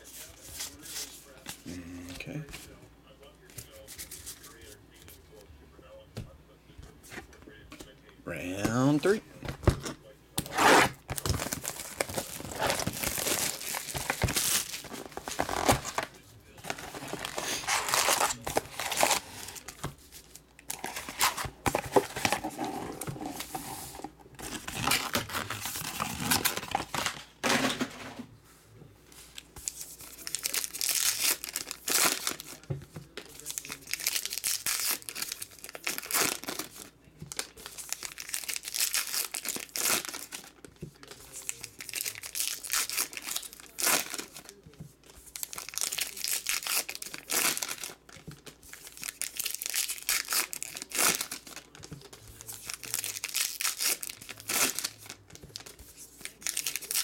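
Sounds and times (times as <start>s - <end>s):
wrappers crinkling and tearing: 10.4s - 23.8s, 24.4s - 27.3s, 29.3s - 57.0s.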